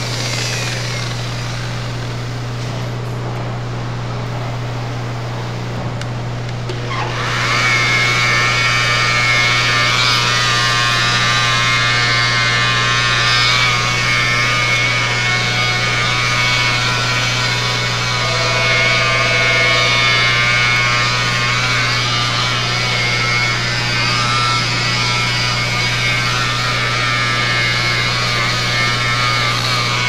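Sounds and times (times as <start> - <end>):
electric polisher motor whine: 0.0 - 2.8, 6.6 - 30.0.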